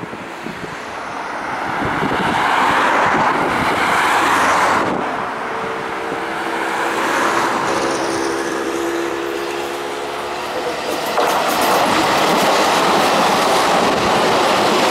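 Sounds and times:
broad rushing noise: 0.0 - 14.9
electric train with held tones: 5.5 - 14.9.

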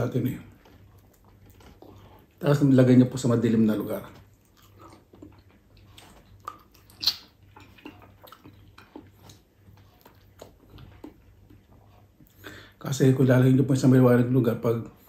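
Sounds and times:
wet smacking and chewing: 0.4 - 2.4, 4.0 - 12.8.

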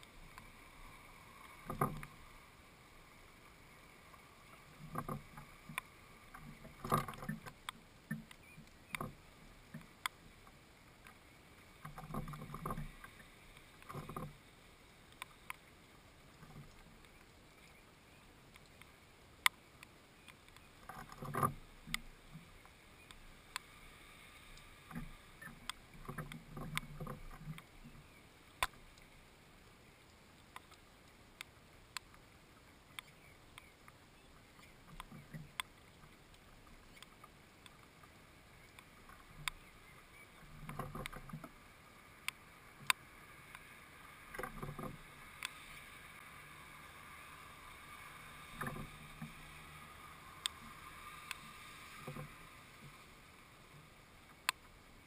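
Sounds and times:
sharp clicks: 18.5 - 23.7.

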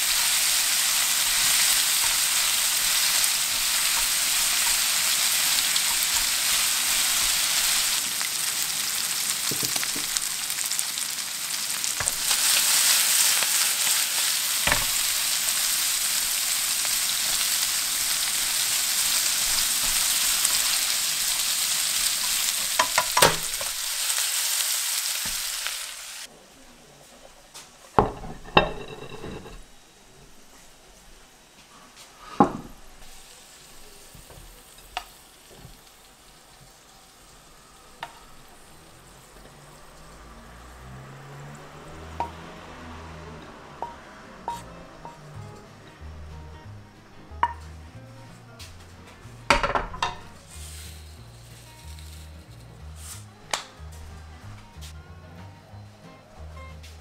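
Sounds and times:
meat sizzling in a frying pan: 0.0 - 26.3, 27.3 - 42.6, 43.3 - 45.5
bowl clinking on plate: 28.0 - 29.7
chopsticks clicking against pan: 53.5 - 53.7.

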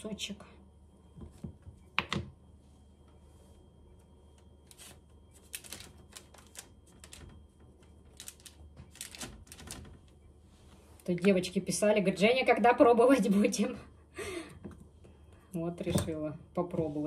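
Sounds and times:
baking parchment crinkling: 4.7 - 7.4, 8.0 - 9.9.

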